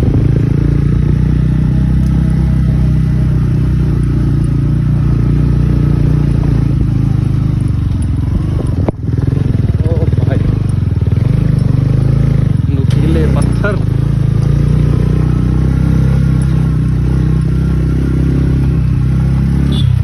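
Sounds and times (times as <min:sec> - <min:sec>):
motorcycle engine running: 0:00.0 - 0:20.0
tyres on gravel: 0:03.2 - 0:20.0.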